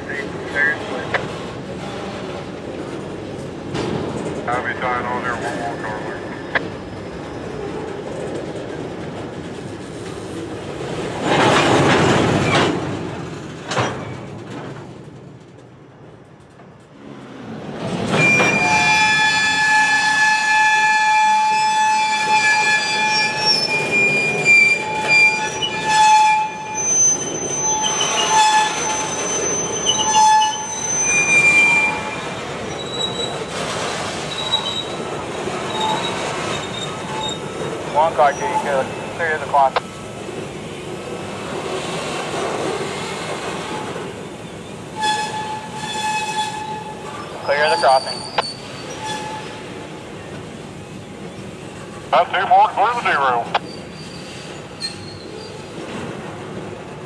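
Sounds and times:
rumble of train cars: 0:00.0 - 0:57.0
train wheels squealing: 0:18.2 - 0:33.6, 0:34.2 - 0:35.0, 0:35.6 - 0:39.2, 0:43.7 - 0:49.6, 0:53.6 - 0:55.8.

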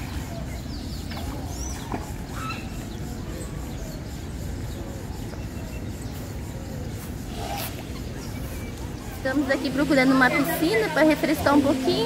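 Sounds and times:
faint bird calls: 0:00.0 - 0:09.6.

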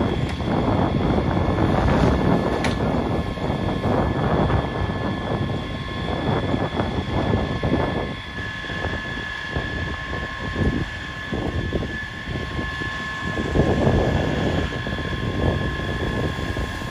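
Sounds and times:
vehicle engine whining: 0:00.0 - 0:16.9
wind on microphone: 0:00.0 - 0:16.9.

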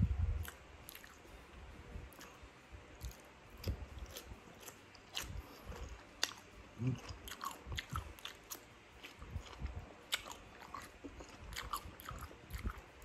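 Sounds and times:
crunchy cucumber chewing: 0:00.4 - 0:01.3, 0:02.1 - 0:13.0.

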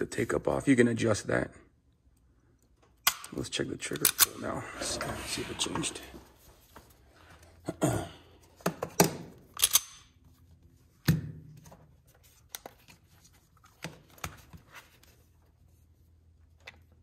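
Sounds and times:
pistol and gauge clicking and knocking: 0:03.0 - 0:03.4, 0:09.0 - 0:10.1.

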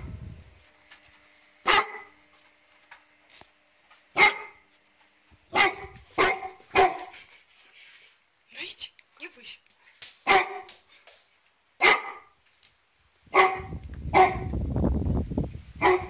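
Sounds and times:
dog barking: 0:01.6 - 0:02.1, 0:04.2 - 0:04.6, 0:05.5 - 0:07.1, 0:10.2 - 0:10.8, 0:11.8 - 0:12.4, 0:13.3 - 0:14.5, 0:15.8 - 0:16.0.

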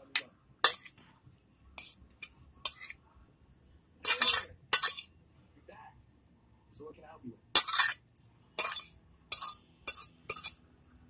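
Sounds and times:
fork scraping a plate: 0:00.1 - 0:01.1, 0:01.8 - 0:03.0, 0:04.0 - 0:05.1, 0:07.6 - 0:08.0, 0:08.6 - 0:10.6.

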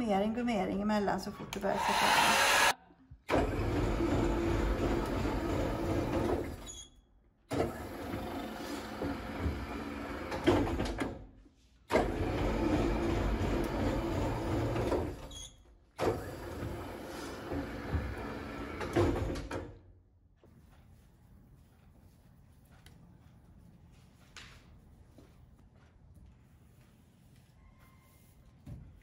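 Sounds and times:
printing press whir and rumble: 0:03.3 - 0:06.7, 0:07.5 - 0:11.0, 0:11.9 - 0:15.3, 0:16.0 - 0:19.7.

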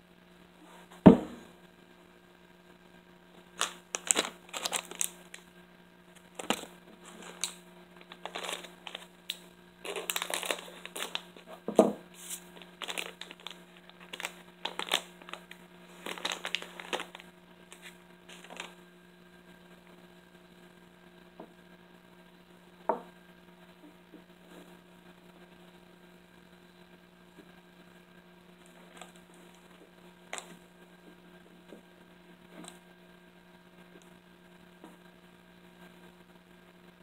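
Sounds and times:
plastic packaging crinkling: 0:03.4 - 0:05.5, 0:06.1 - 0:18.8, 0:28.6 - 0:30.6.

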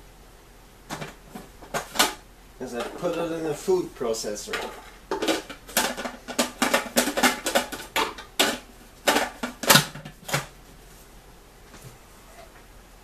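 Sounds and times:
plastic bowl knocks and clicks: 0:04.5 - 0:10.5.

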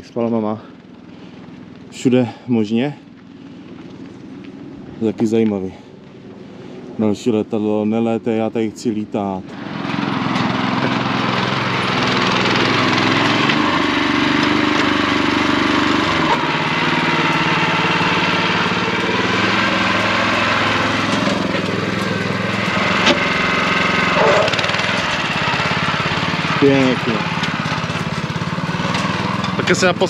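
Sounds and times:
small engine running: 0:09.4 - 0:30.0.

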